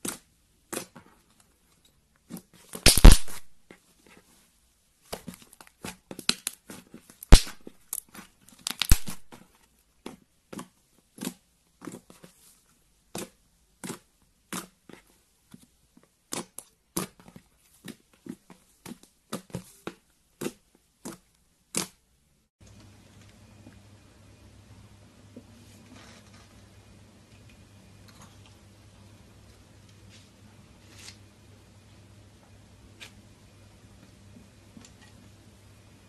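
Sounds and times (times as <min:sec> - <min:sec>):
slime popping and crackling: 0:02.8 - 0:03.5, 0:06.2 - 0:09.3.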